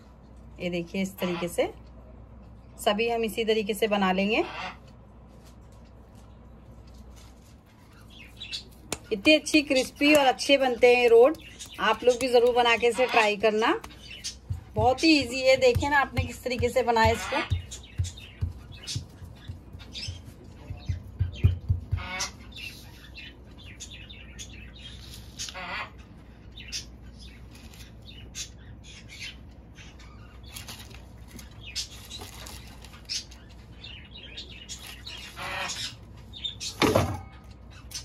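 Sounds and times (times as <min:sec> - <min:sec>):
birds chirping and calling: 0:07.8 - 0:38.0.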